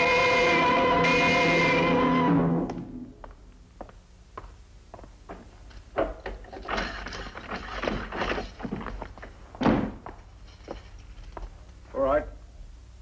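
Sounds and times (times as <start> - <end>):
heavy door thud: 9.6 - 10.1
keys clattering and jangling: 10.4 - 11.4.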